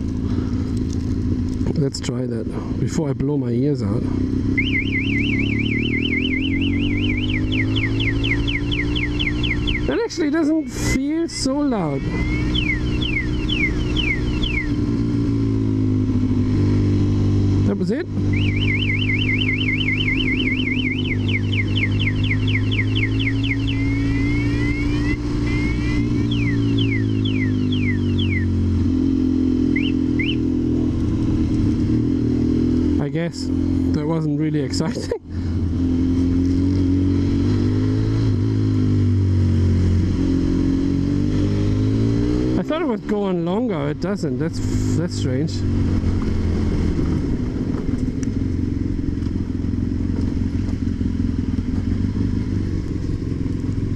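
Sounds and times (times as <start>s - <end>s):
motorcycle engine running: 0.0s - 53.9s
alarm chirps: 4.5s - 15.0s, 18.2s - 28.7s, 29.6s - 30.7s
motorcycle alarm siren sweeps: 4.5s - 15.3s, 18.2s - 30.9s.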